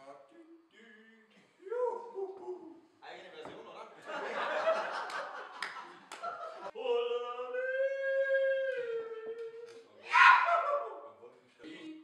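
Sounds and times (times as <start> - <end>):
group laughter and talk: 3.7 - 6.8.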